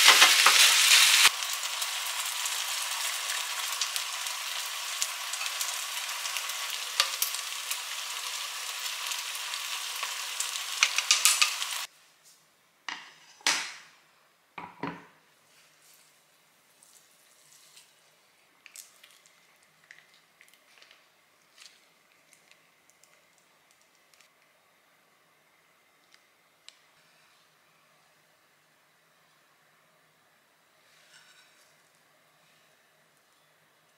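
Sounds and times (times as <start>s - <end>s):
meat sizzling in a frying pan: 0.0s - 11.9s.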